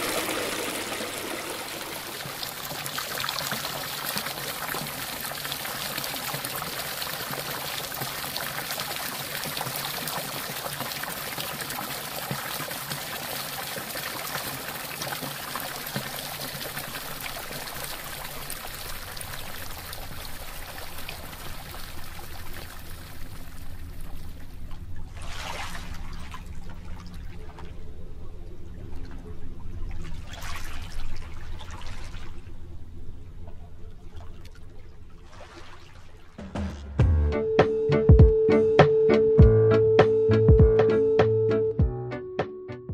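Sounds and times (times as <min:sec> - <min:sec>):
flowing water rushing: 0:00.0 - 0:26.9.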